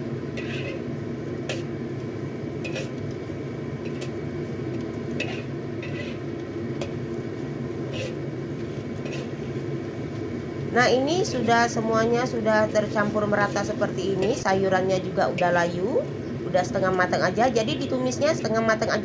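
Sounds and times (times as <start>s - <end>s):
frying sizzle: 0.0s - 19.0s
metal spatula scraping a wok: 0.3s - 1.7s, 2.6s - 3.0s, 3.8s - 4.2s, 5.2s - 6.3s, 7.8s - 9.5s.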